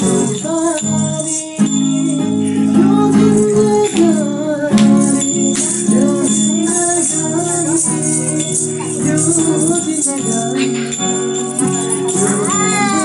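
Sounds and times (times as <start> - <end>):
acoustic guitar strumming: 0.0 - 13.0
jingling rattle shaken: 0.0 - 13.0
person singing: 0.0 - 13.0
hand claps: 3.8 - 6.9.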